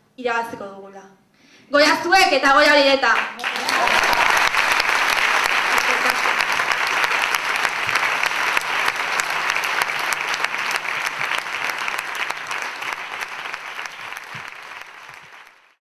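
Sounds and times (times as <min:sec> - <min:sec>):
audience clapping: 0:03.1 - 0:15.8.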